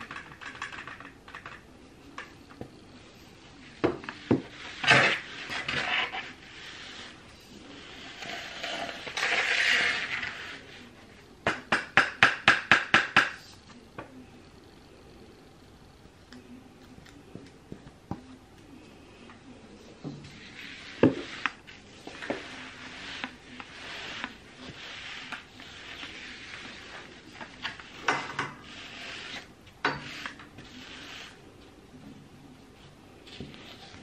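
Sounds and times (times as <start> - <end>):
dust cleaner rasping on floor: 4.2 - 10.9, 20.3 - 31.4.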